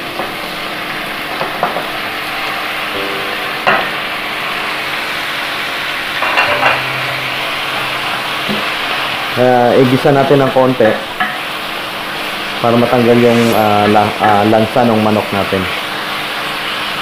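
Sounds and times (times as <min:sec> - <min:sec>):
chicken sizzling in hot oil: 0:04.3 - 0:17.0.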